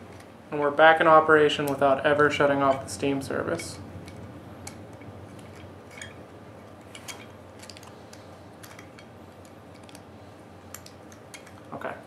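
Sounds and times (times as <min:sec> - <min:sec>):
low room hum: 0:00.0 - 0:12.0
small metal parts clicking: 0:03.6 - 0:11.8.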